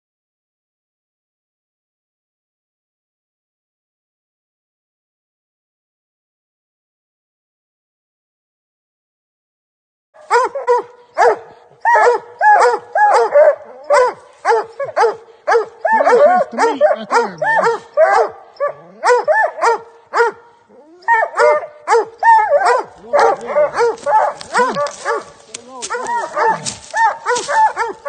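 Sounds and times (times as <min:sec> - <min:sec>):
deeper dog barks: 0:10.2 - 0:28.0
hounds barking: 0:10.2 - 0:28.0.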